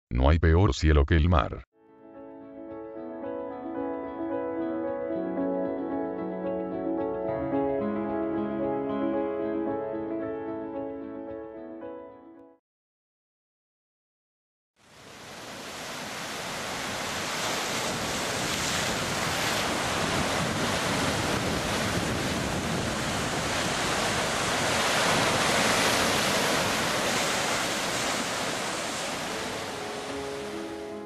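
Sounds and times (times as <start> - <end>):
ocean waves breaking: 14.9 - 31.0.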